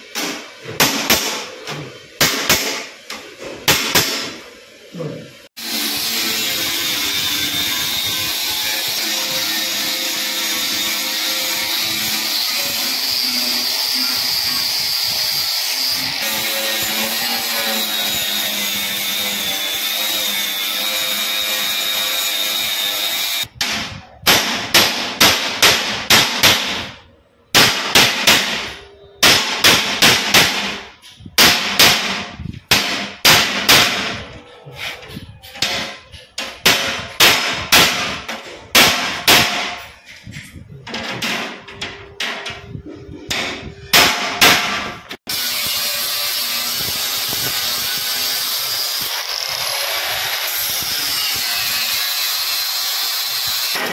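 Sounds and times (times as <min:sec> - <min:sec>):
hammer striking metal sheet: 0:00.0 - 0:04.4, 0:23.4 - 0:45.5
angle grinder grinding metal: 0:05.6 - 0:23.5.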